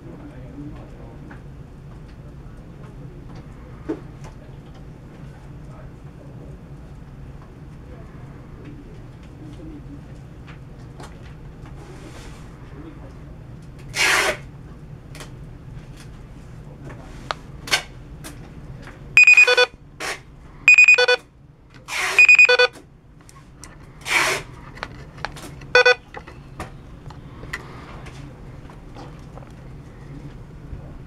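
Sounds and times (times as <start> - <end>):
buzzy electronic beeps: 19.2 - 19.7, 22.2 - 22.7.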